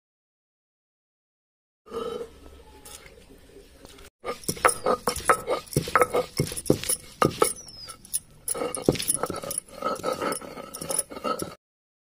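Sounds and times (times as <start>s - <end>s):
stone grinding rasp: 4.2s - 11.6s
stone roller pounding garlic: 4.2s - 11.6s.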